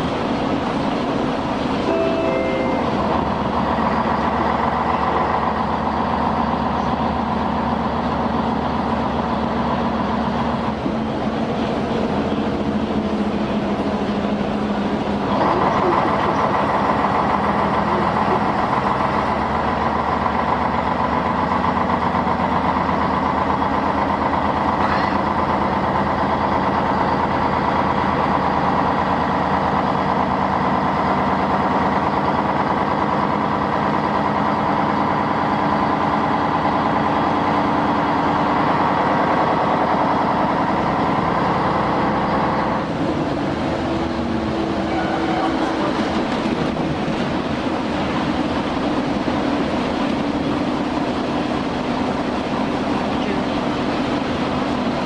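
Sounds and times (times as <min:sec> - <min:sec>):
bus engine running: 0:00.0 - 0:55.0
road noise: 0:00.0 - 0:55.0
brief tones: 0:01.9 - 0:03.3.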